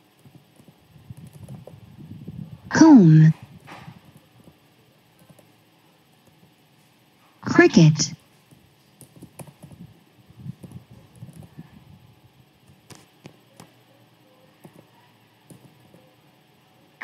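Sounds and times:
computer keyboard typing: 0.2 - 1.8, 5.2 - 6.4, 9.0 - 9.8, 10.6 - 11.6, 14.6 - 16.1.

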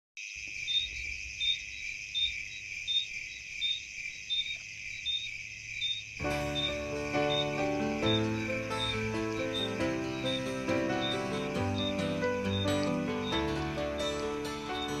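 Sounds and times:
crickets chirping: 0.2 - 15.0
music: 6.2 - 15.0.

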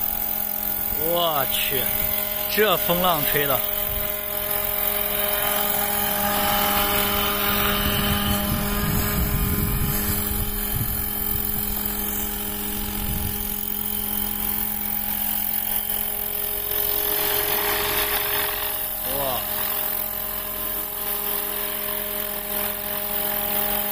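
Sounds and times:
rc helicopter whine: 0.0 - 23.9
gusty low rumble: 7.5 - 13.5.

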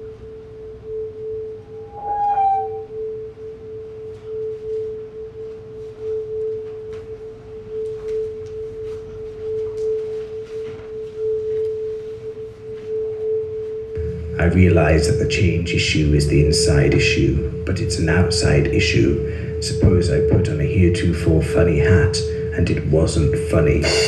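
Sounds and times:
higher tone with overtones: 0.0 - 24.0
steady drone tone: 0.0 - 24.0
faint ticks and rustles: 7.8 - 12.9.

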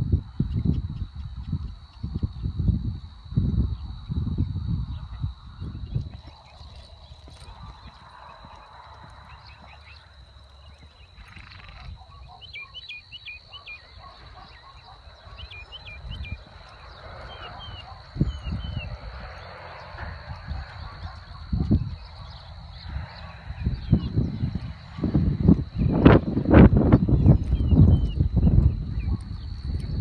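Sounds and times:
birds chirping: 4.9 - 30.0
horse hooves thudding in sand: 5.7 - 12.4.

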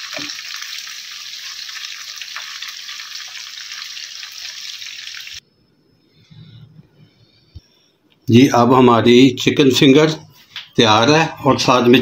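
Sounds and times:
food sizzling in hot oil: 0.0 - 5.4.

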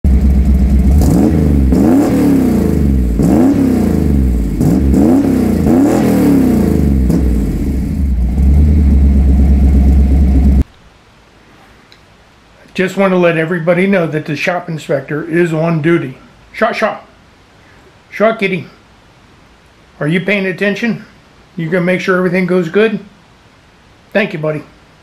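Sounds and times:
engine revving: 0.0 - 10.6
steady low drone: 6.5 - 10.6.

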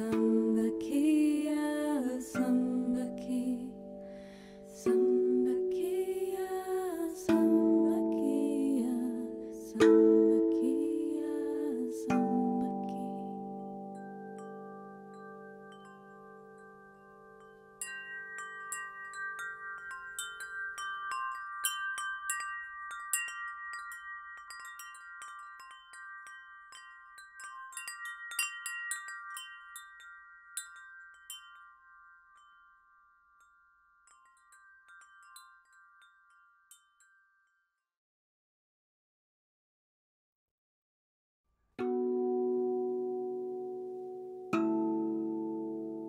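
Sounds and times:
wind chimes tinkling: 0.0 - 37.9, 41.8 - 46.0.

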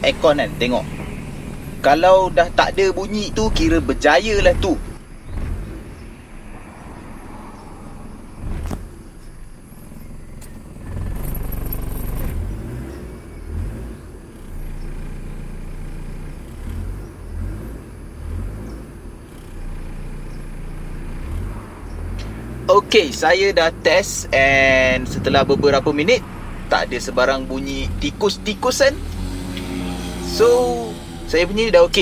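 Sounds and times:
car engine idling: 0.0 - 32.0.

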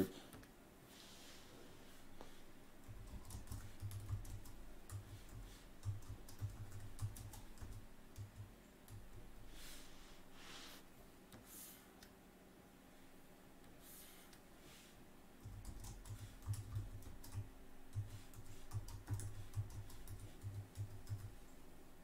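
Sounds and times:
typing on computer keyboard: 2.8 - 9.2, 15.4 - 21.4.

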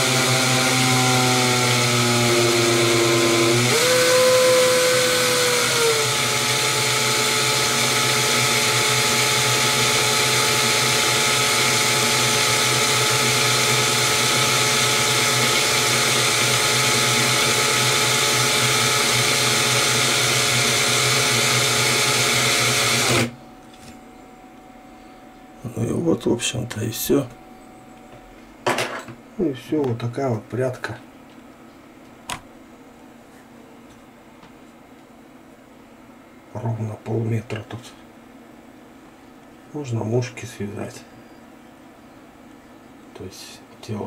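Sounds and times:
cordless drill motor whine: 0.0 - 23.4.

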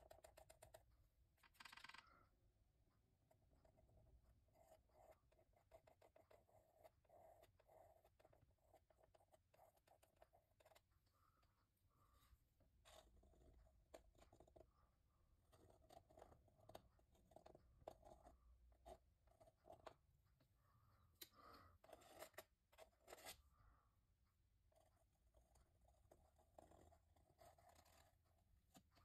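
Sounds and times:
palette knife scraping paint: 21.5 - 23.5, 24.8 - 29.0.

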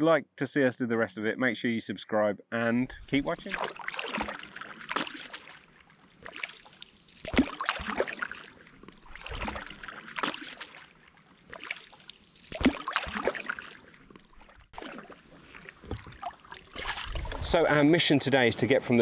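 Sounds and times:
paddle splashing through water: 3.0 - 17.6.

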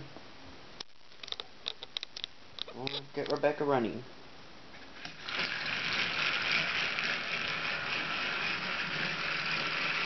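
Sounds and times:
toy train motor and gears running: 5.0 - 10.0.

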